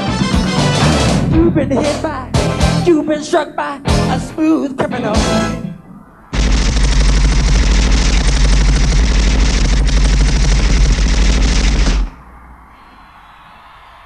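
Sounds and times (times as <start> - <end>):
machine-gun fire over loudspeakers: 6.3 - 12.2
faint crowd noise: 12.2 - 14.0.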